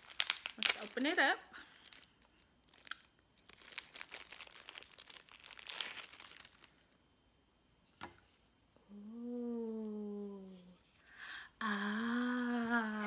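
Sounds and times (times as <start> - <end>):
plastic bag crinkling: 0.0 - 7.0.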